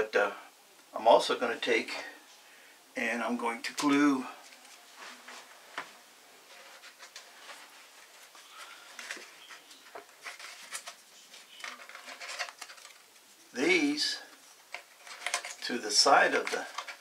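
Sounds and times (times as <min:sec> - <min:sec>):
foam board clicks and rustles: 0:08.6 - 0:13.1, 0:14.6 - 0:17.0.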